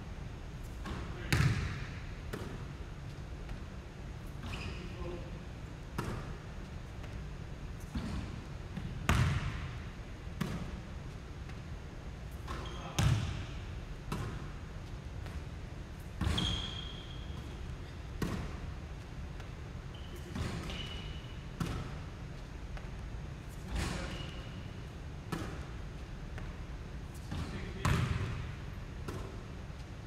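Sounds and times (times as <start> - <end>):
steady low hum: 0.0 - 30.0
basketballs bouncing on hardwood: 0.8 - 2.5, 8.8 - 9.7, 12.5 - 13.5, 27.3 - 28.5
short high squeaks: 16.2 - 17.5, 19.9 - 21.4.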